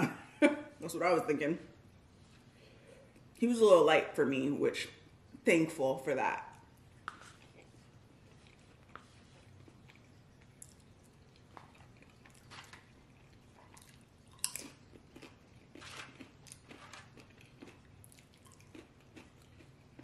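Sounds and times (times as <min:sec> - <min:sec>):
close chewing with mouth clicks: 0:06.5 - 0:20.0.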